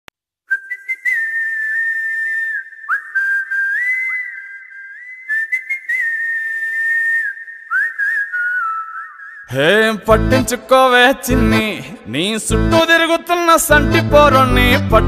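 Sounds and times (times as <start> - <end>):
whistled folk melody: 0.5 - 9.5.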